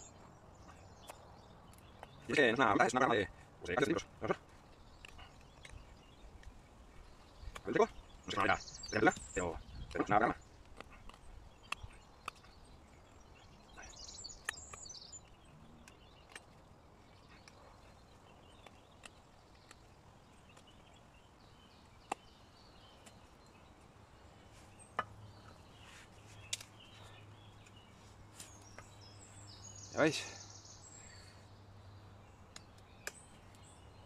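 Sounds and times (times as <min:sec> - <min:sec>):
birds chirping: 0:00.0 - 0:34.0
knife cutting wood clicks: 0:10.6 - 0:12.6, 0:32.5 - 0:33.7.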